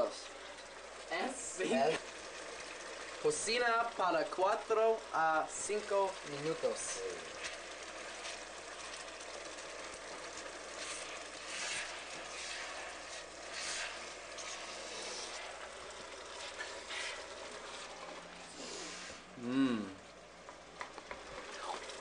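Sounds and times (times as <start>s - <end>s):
fish frying in oil: 0.0s - 22.0s
spatula scraping a pan: 10.7s - 15.7s, 16.4s - 18.0s.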